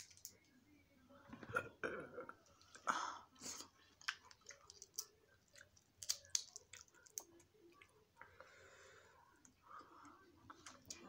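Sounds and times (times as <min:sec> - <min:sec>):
soft chewing: 0:01.3 - 0:11.0
crab shell cracking: 0:05.8 - 0:07.4.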